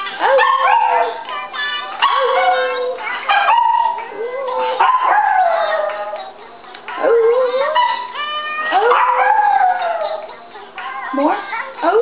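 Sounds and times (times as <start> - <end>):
small dog howling: 2.0 - 6.2, 7.0 - 10.3.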